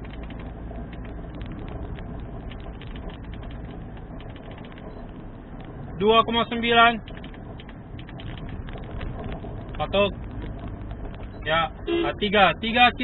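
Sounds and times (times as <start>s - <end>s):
small rattling clicks: 0.0s - 5.8s, 6.8s - 11.3s
road and engine rumble: 0.0s - 13.0s.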